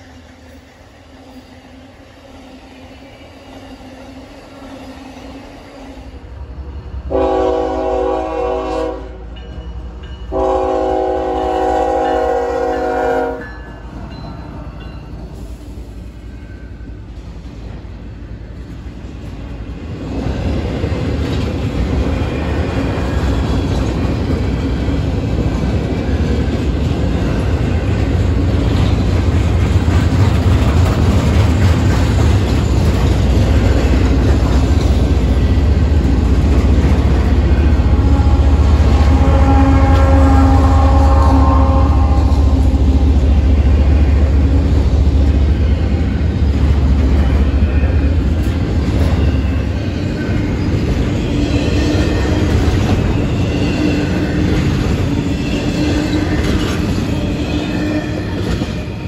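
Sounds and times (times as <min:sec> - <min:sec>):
freight train rumble and wheel clatter: 0:00.0 - 0:59.0
locomotive air horn blasts: 0:07.1 - 0:09.3, 0:10.3 - 0:13.5, 0:37.5 - 0:43.1.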